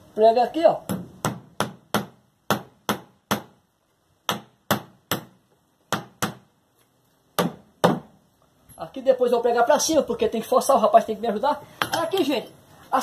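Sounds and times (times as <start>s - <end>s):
hammer striking nails into wood: 0.9s - 3.6s, 4.3s - 6.5s, 7.4s - 8.1s.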